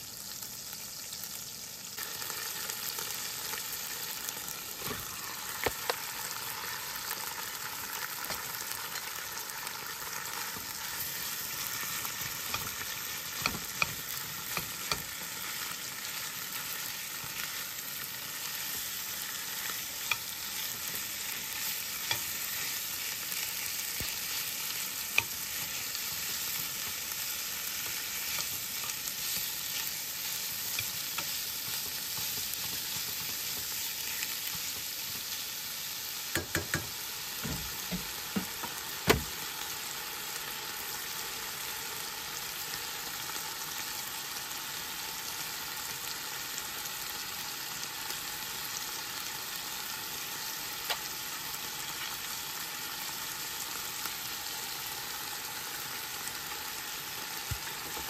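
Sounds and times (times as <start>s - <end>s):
meat sizzling in a pan: 0.0s - 58.0s
metal spoon scraping a pan: 11.0s - 15.6s, 18.5s - 35.4s.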